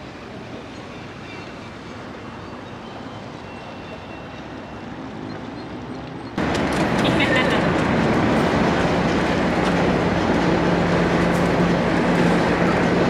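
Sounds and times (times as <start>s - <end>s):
ferry engine running: 5.1s - 13.0s.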